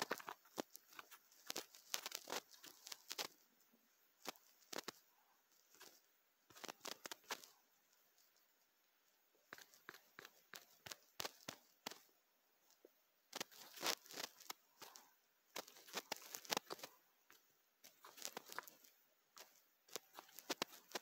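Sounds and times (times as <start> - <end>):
fingers tapping on phone: 9.5 - 12.1.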